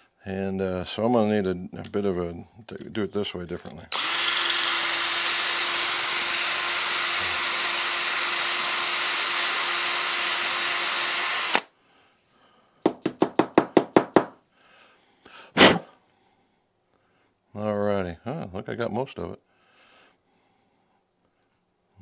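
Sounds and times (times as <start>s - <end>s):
power tool spinning wire brush: 3.9s - 11.6s
quick knocks: 12.9s - 14.4s.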